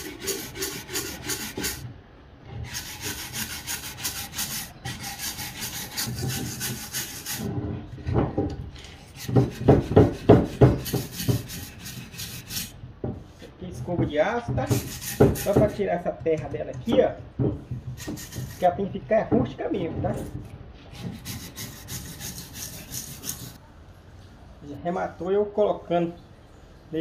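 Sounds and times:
wire brush scrubbing wood: 0:00.0 - 0:01.8, 0:02.6 - 0:07.5, 0:09.0 - 0:12.8, 0:14.6 - 0:15.8, 0:18.0 - 0:18.7, 0:20.9 - 0:23.6.

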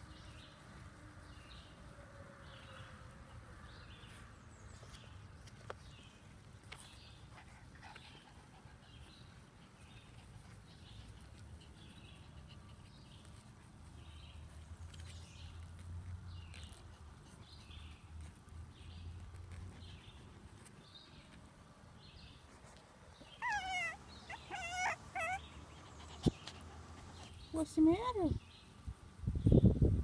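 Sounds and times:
puppies whimpering: 0:23.2 - 0:27.1.

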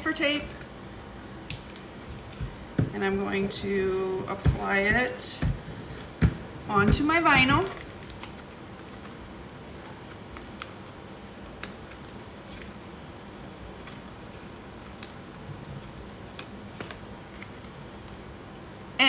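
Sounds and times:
decal tape peeling and crinkling: 0:06.8 - 0:18.8.

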